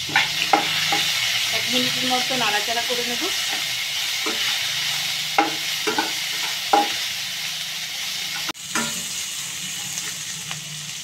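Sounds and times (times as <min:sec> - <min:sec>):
spatula scraping and knocking pan: 0:00.0 - 0:01.2, 0:03.2 - 0:07.1, 0:08.3 - 0:09.2
onions sizzling in hot oil: 0:00.0 - 0:11.0.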